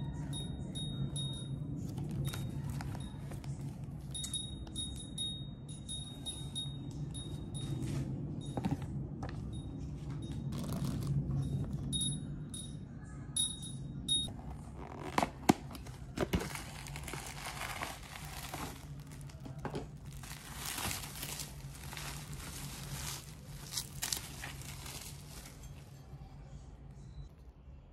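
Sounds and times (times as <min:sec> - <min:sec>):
bubble wrap crinkling: 0:01.7 - 0:04.2, 0:10.5 - 0:11.9, 0:14.3 - 0:26.2
paper and cardboard handling: 0:10.5 - 0:11.8, 0:14.3 - 0:26.0.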